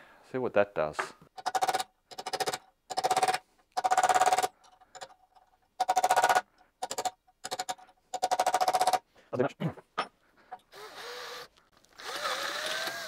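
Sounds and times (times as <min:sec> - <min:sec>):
power drill buzzing: 0:10.7 - 0:13.0.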